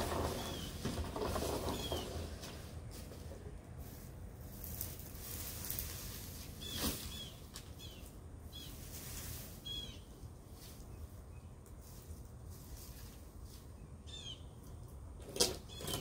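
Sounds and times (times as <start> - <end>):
outdoor background noise: 0.0 - 16.0
bird chirping: 6.6 - 8.8, 9.6 - 10.1, 13.8 - 14.6.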